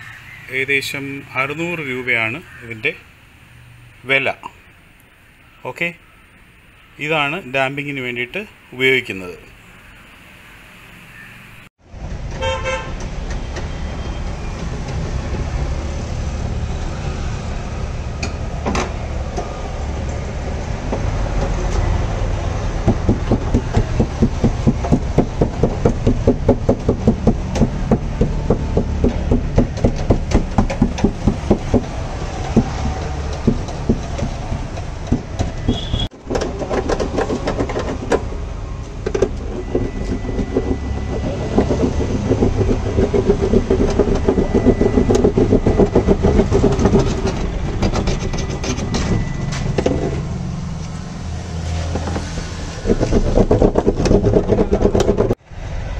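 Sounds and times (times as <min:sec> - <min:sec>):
rhythmic rubbing on steel panel: 0:22.8 - 0:35.7, 0:39.1 - 0:50.2, 0:52.1 - 0:55.4
knocks against metal panel: 0:22.8 - 0:38.3.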